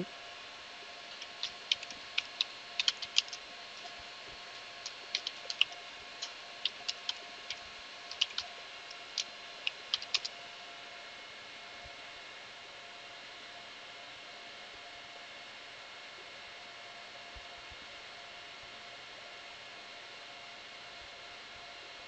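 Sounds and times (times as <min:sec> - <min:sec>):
computer keyboard typing: 0:01.1 - 0:10.4.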